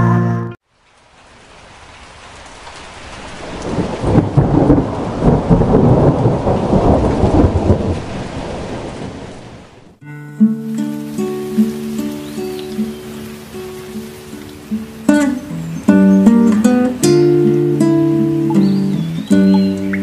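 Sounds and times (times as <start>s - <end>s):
rain falling: 0.6s - 20.0s
rolling thunder rumble: 3.1s - 10.0s.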